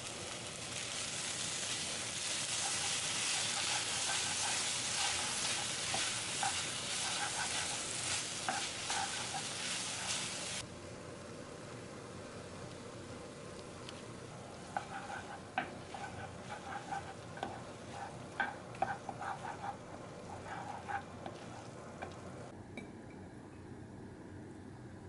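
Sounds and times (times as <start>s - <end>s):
noodles sizzling in a frying pan: 0.0s - 22.5s
spatula tapping and scraping pan: 2.5s - 10.4s, 14.6s - 22.2s.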